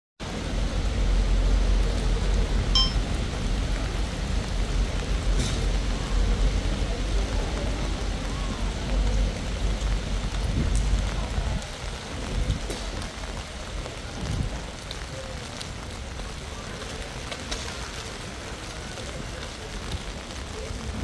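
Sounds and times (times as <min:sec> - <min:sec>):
rain on stone paving: 0:00.2 - 0:21.0
high chirp: 0:02.8 - 0:03.0.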